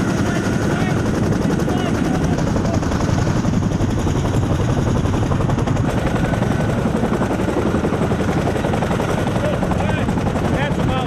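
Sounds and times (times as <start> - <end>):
helicopter rotor beat: 0.0 - 11.0.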